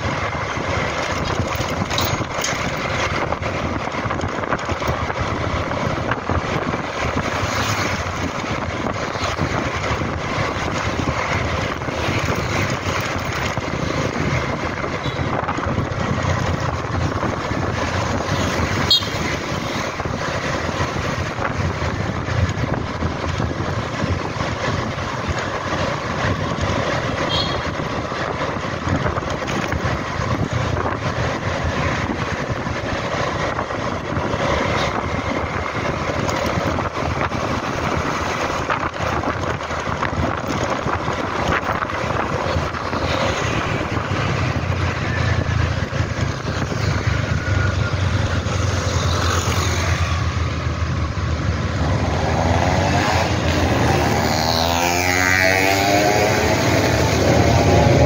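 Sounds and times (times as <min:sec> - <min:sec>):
scooter engine: 0:00.0 - 0:58.0
wind buffeting microphone: 0:00.0 - 0:58.0.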